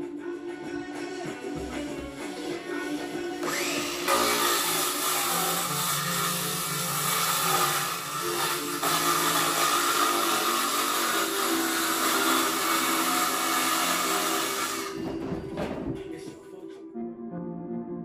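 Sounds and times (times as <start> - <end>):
circular saw cutting board: 1.9 - 15.8.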